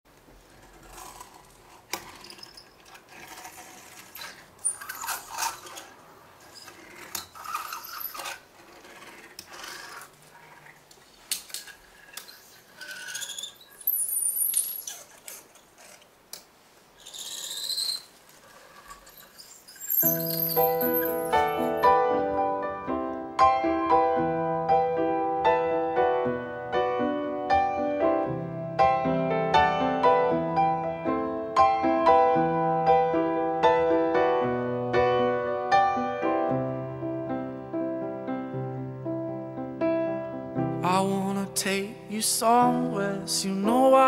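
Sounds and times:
handling clicks and scraping: 0.1s - 21.9s
short squeaks: 0.8s - 16.1s, 17.0s - 21.9s
digital piano chords: 20.0s - 44.0s.

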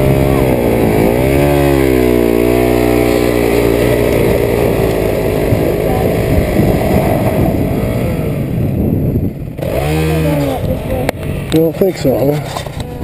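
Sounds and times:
dirt bike engine revving: 0.0s - 12.8s
wheel spinning in loose dirt: 0.0s - 13.0s.

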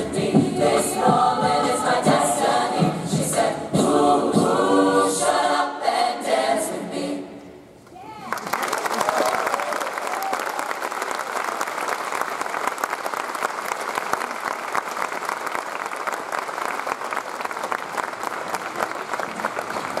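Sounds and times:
audience applause: 8.2s - 20.0s.

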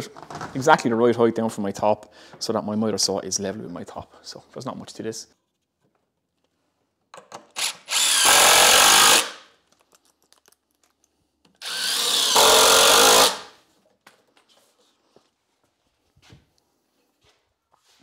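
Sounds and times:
cordless drill driving screws: 7.6s - 9.4s, 11.6s - 13.5s.

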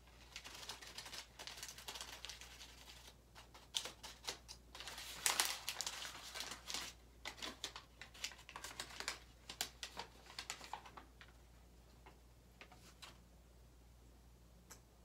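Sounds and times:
hands crumpling crinkly material: 0.0s - 11.4s.

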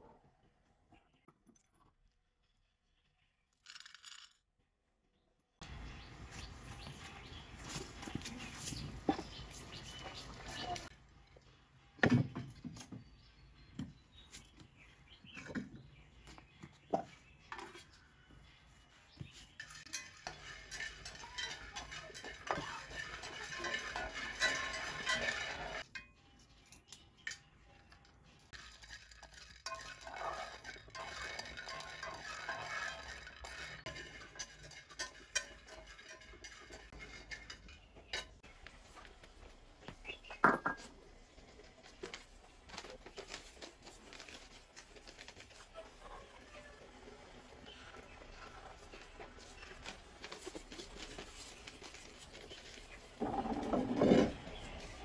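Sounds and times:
scraping and stirring: 17.0s - 26.1s, 28.0s - 55.0s
utensils clinking against bowls: 19.4s - 38.6s.

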